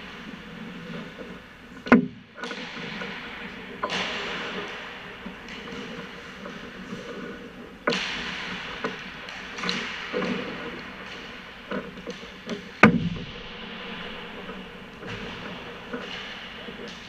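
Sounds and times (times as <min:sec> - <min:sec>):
hockey sticks striking pucks: 0:00.0 - 0:17.0
skate blades scraping ice: 0:04.0 - 0:12.8.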